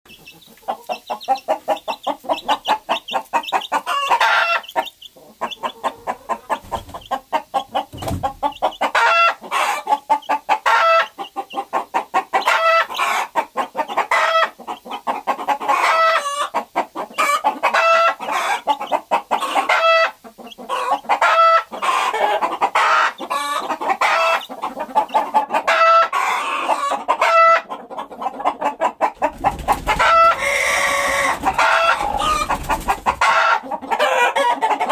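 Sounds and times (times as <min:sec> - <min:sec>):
chickens clucking: 0:00.1 - 0:34.9.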